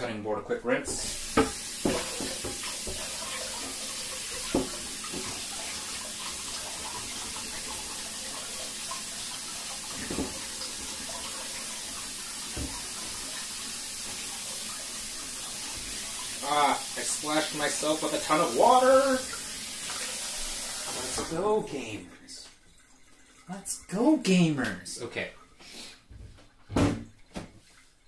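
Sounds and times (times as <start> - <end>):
tap running into a sink: 0.9 - 21.4
cutting board knocking against sink: 1.3 - 3.1, 4.5 - 5.4.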